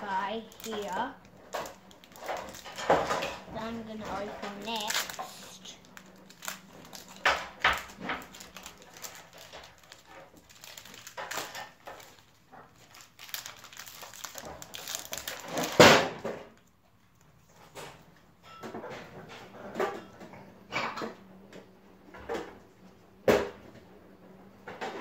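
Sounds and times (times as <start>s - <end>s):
foil wrapper crinkling and tearing: 0.0s - 16.7s.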